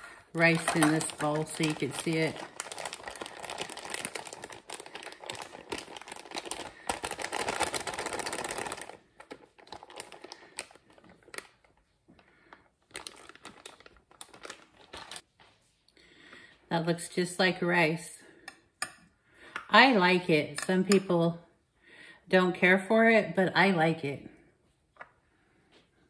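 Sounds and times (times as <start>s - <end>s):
plastic bag crinkling: 0.0s - 15.3s.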